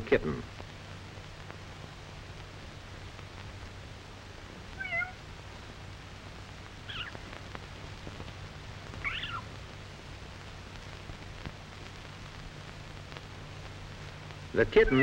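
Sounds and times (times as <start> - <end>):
steady low hum: 0.0 - 15.0
kitten mewing: 4.8 - 5.2, 6.9 - 7.2, 9.0 - 9.5.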